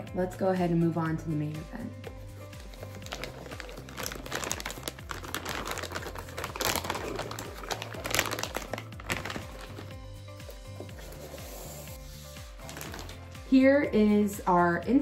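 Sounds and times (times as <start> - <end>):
plastic bag crinkling: 2.4 - 10.1, 12.6 - 13.2.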